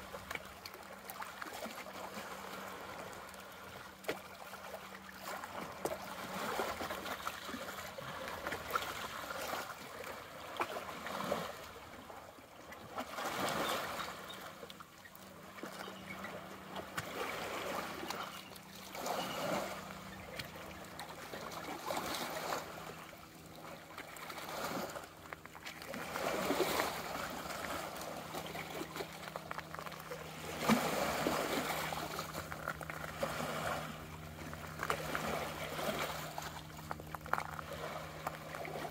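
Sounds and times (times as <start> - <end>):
small waves lapping on rocks: 0.0 - 38.9.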